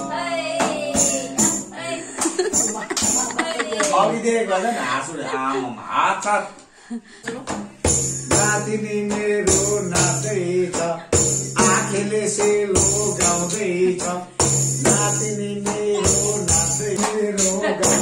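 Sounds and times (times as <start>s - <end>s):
frame drum beating: 0.0s - 3.7s, 7.4s - 18.0s
man singing: 8.0s - 18.0s.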